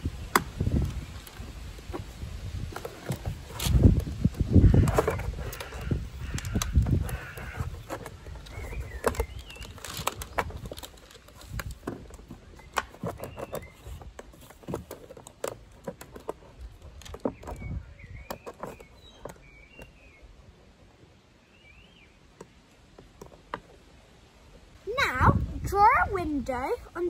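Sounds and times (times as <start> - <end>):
birds chirping: 0.0 - 27.0.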